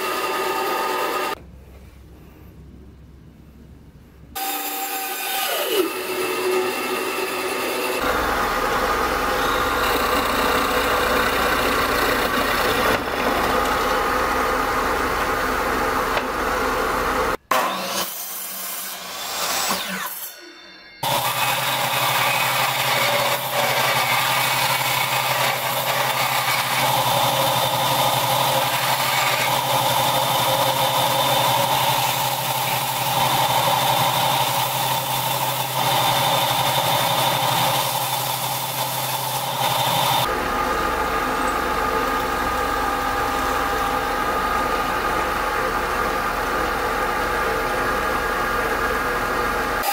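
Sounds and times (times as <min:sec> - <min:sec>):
electric bandsaw running: 0:00.0 - 0:01.4, 0:04.4 - 0:20.3, 0:21.0 - 0:49.9
belt and disc sander sanding wood: 0:21.0 - 0:40.3.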